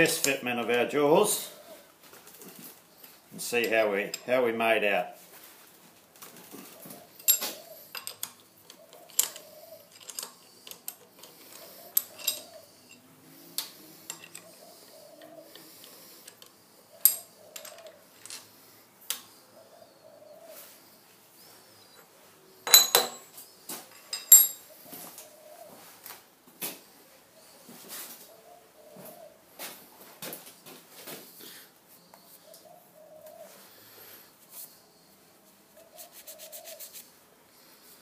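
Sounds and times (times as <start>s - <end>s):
screws clinking on metal vise: 3.5s - 4.4s, 7.2s - 13.1s, 14.0s - 14.5s, 15.5s - 18.5s, 22.7s - 23.3s, 23.9s - 24.6s.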